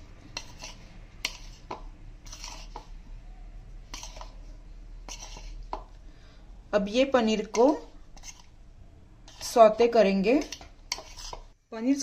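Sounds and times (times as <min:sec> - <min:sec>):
metal spoon scraping plastic bowl: 0:00.2 - 0:03.0, 0:03.9 - 0:05.9, 0:07.2 - 0:08.6, 0:09.2 - 0:11.5.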